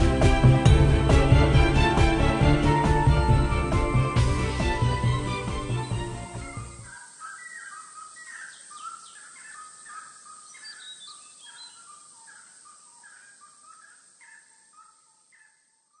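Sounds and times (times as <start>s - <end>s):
birds calling: 4.4s - 16.0s
high bird chirps: 5.7s - 15.6s.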